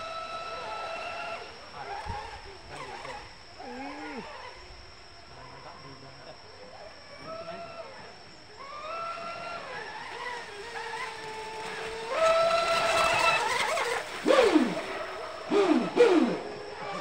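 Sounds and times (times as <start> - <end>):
electric motor whining: 8.6 - 17.0.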